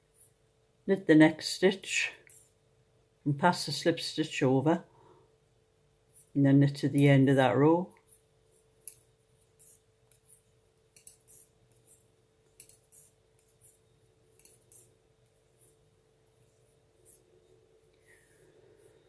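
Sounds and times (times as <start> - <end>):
faint steady hum: 0.0 - 19.0
knitting needles clicking: 8.8 - 15.8.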